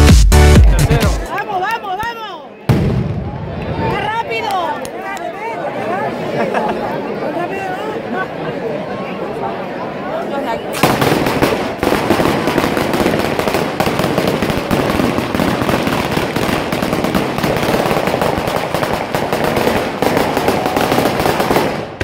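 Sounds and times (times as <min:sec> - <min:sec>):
firecrackers banging rapidly: 0:10.8 - 0:22.0.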